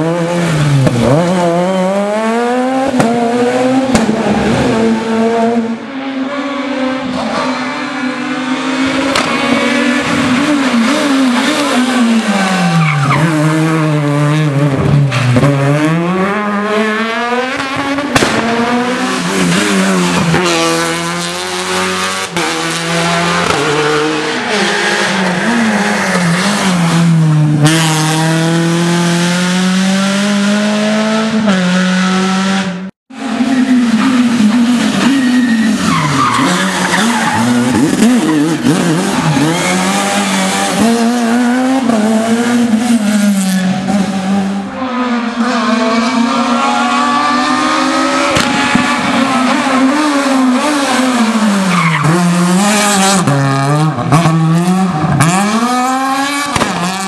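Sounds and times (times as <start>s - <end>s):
rally car engines revving: 0.0s - 57.0s.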